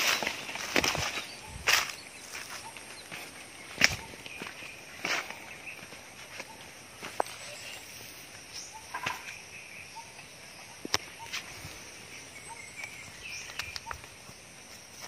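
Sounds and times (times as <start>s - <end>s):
faint chirps: 0.0s - 15.0s.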